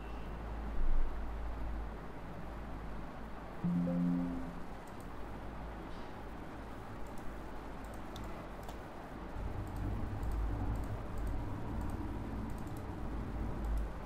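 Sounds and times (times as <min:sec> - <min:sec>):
keyboard and mouse clicks: 0:07.0 - 0:08.8, 0:09.6 - 0:12.9.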